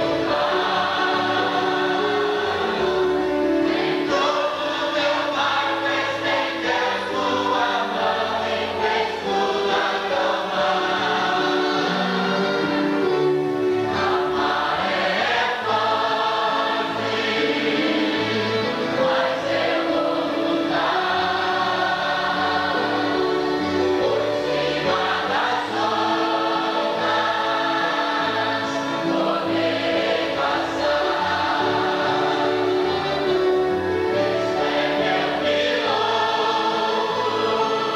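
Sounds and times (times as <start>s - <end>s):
congregation singing a hymn: 0.0s - 37.9s.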